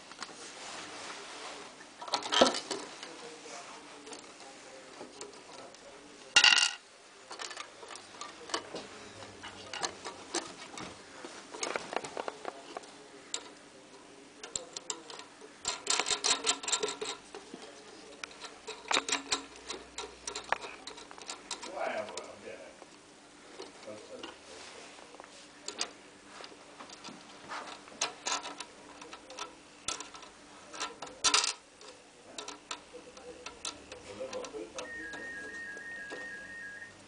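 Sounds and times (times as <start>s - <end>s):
clicks and knocks of metal parts: 2.0s - 3.3s, 4.0s - 24.5s, 25.1s - 36.4s
rapid ticking clicks of bolt: 14.4s - 17.5s, 18.2s - 22.2s
metal clatter: 14.4s - 22.3s, 25.7s - 36.4s.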